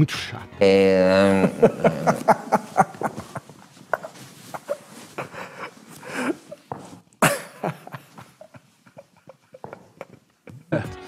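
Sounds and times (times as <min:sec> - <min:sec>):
man laughing hard: 0:01.0 - 0:06.6, 0:07.2 - 0:10.9.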